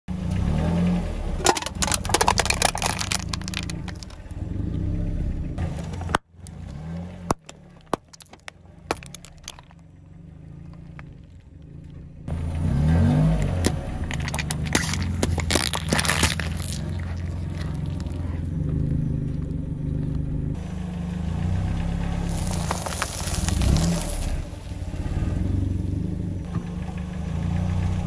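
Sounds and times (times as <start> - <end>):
car engine running low: 0.1 - 28.0
pudding cup squashing: 1.4 - 4.2, 7.3 - 9.8, 13.6 - 18.4, 22.3 - 24.4
drink can crunching: 1.4 - 4.3, 7.3 - 9.8, 13.6 - 18.4, 22.3 - 24.4
plastic cups crackling: 1.4 - 4.3, 7.3 - 9.8, 13.9 - 18.5, 22.3 - 24.5.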